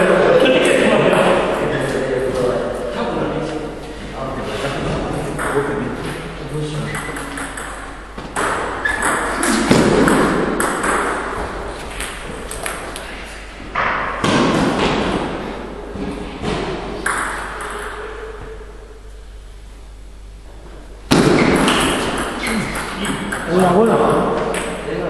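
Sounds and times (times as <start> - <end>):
voices: 0.0 - 7.6, 22.2 - 25.0
table tennis ball hits: 6.9 - 13.0, 16.4 - 18.3, 21.1 - 24.8.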